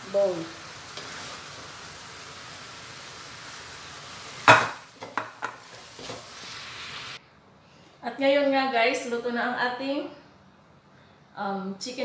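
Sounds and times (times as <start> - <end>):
sauce sizzling in a wok: 0.0 - 7.2.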